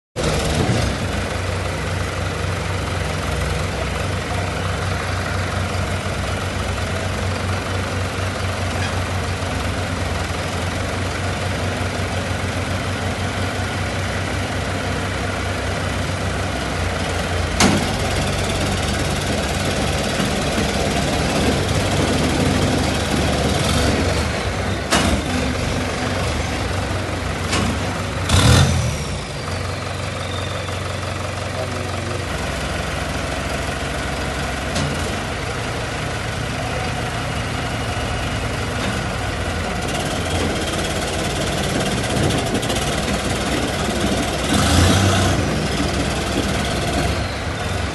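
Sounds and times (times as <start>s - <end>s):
tractor diesel engines running: 0.2s - 47.9s.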